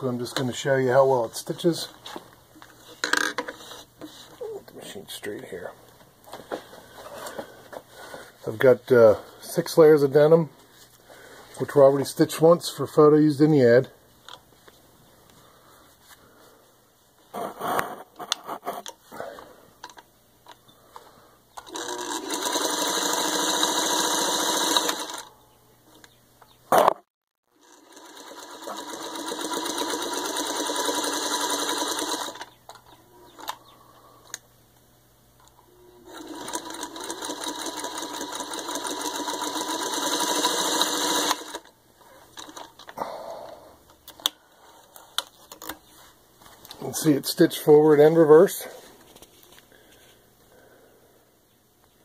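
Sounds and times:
sewing machine stitching: 0:21.6 - 0:25.3, 0:27.5 - 0:32.5, 0:36.1 - 0:41.7.

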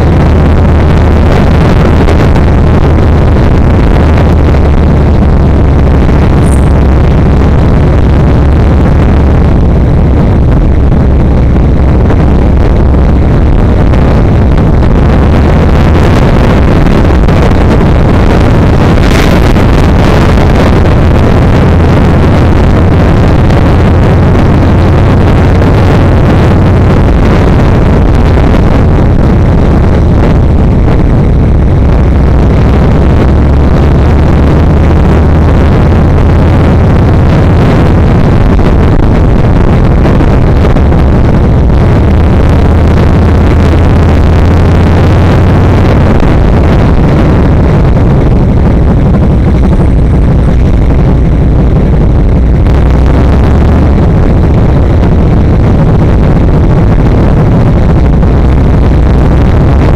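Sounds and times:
motorcycle engine running: 0:00.0 - 0:55.7
wind rushing over microphone: 0:00.0 - 0:59.9.

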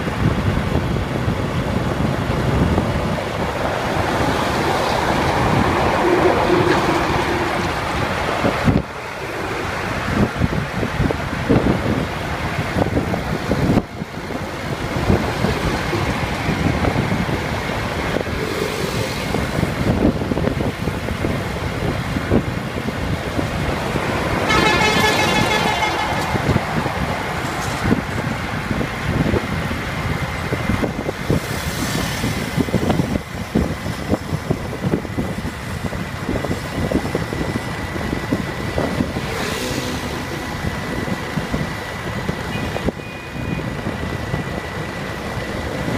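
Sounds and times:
highway traffic: 0:00.0 - 0:45.9
trucks passing: 0:00.0 - 0:45.9
wind on microphone: 0:00.0 - 0:45.9
vehicle horn honking: 0:06.0 - 0:08.0, 0:24.4 - 0:28.0, 0:42.5 - 0:43.6.

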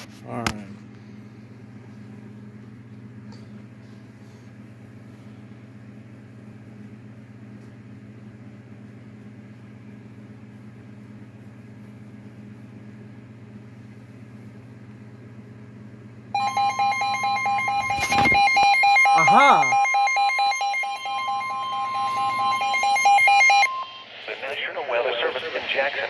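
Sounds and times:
steady low hum: 0:00.0 - 0:26.0
electronic emergency alert tone: 0:16.4 - 0:24.2.

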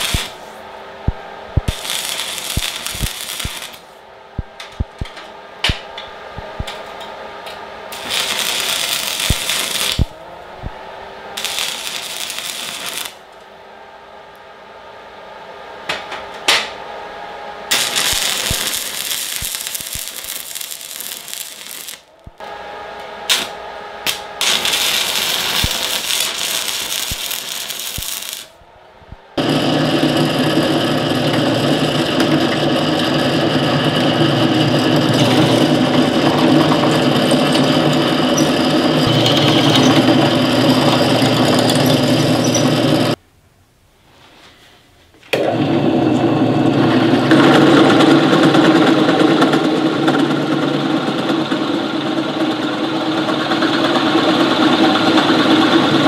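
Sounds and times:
arc welding crackle and hiss: 0:00.0 - 0:07.0, 0:07.9 - 0:10.8, 0:11.4 - 0:13.4, 0:17.7 - 0:43.2
drill press motor humming: 0:17.7 - 0:43.2, 0:45.3 - 0:56.0.

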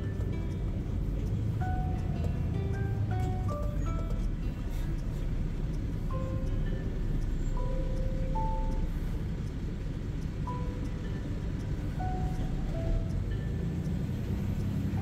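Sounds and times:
music of single held notes: 0:00.0 - 0:15.0
truck engine and road noise: 0:00.0 - 0:15.0.

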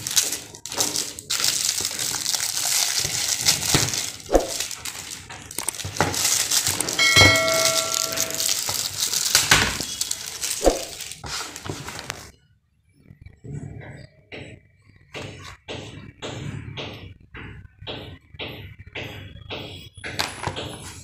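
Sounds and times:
plastic wrapping crinkling: 0:00.0 - 0:12.4
short ringing chime: 0:07.0 - 0:08.6.

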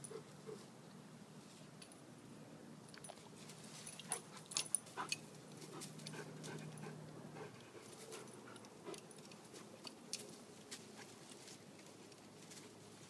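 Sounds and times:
twigs and leaves rustling: 0:08.9 - 0:13.0.

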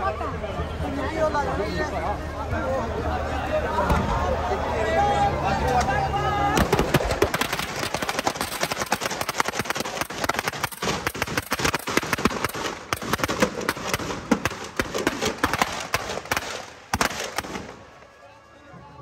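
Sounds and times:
firecrackers crackling: 0:06.6 - 0:18.3.

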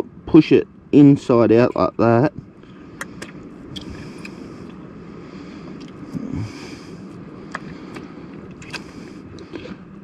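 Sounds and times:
low outdoor rumble: 0:00.0 - 0:10.0
wet squelching and clicking: 0:07.5 - 0:09.6.

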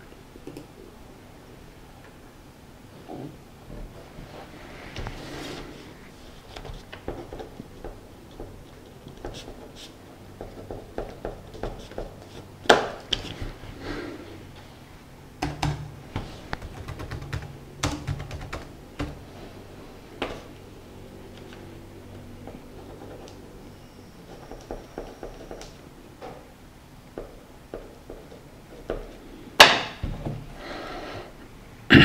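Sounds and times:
laptop keyboard typing: 0:15.4 - 0:19.2, 0:24.2 - 0:25.8.

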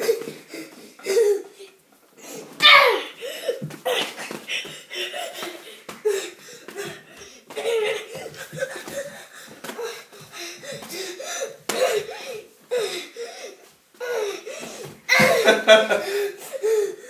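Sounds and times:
man laughing: 0:15.1 - 0:16.3.

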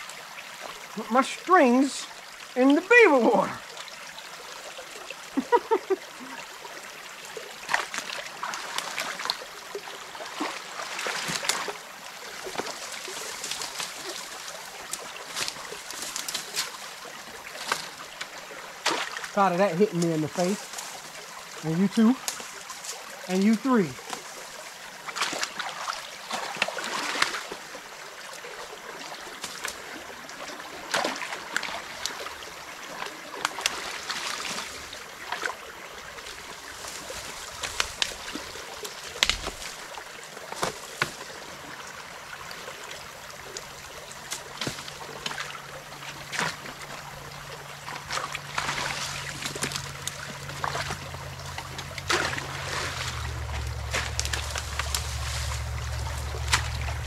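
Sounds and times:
creek water trickling: 0:00.0 - 0:57.0
water splashes: 0:00.0 - 0:57.0
low steady hum: 0:43.7 - 0:57.0.

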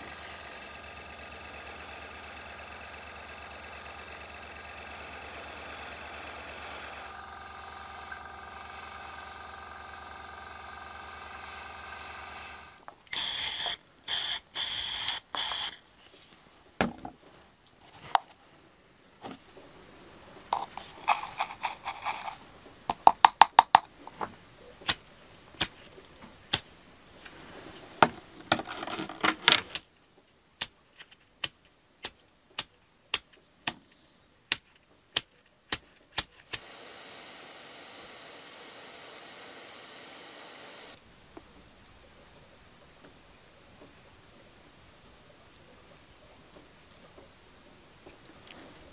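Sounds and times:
quiet steady hiss: 0:12.7 - 0:36.7, 0:40.6 - 0:48.9
spray paint can bursts: 0:13.1 - 0:15.8.

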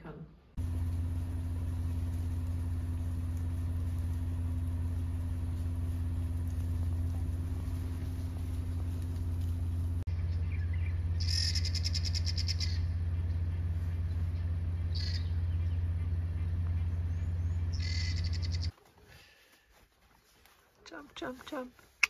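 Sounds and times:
vehicle engine idling: 0:00.6 - 0:18.8
bird rattling call: 0:10.7 - 0:13.0, 0:14.8 - 0:18.7.

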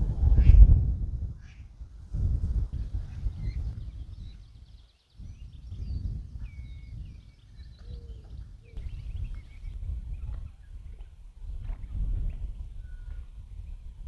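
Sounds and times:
birds chirping: 0:02.8 - 0:10.8.

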